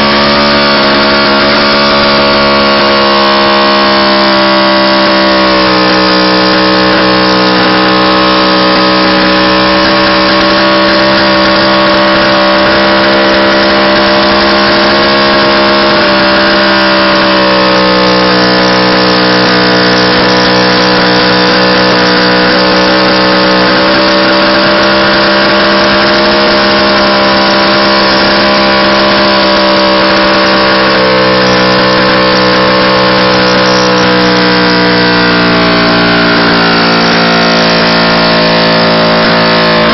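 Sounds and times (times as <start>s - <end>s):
motorcycle engine revving high: 0.0s - 39.9s.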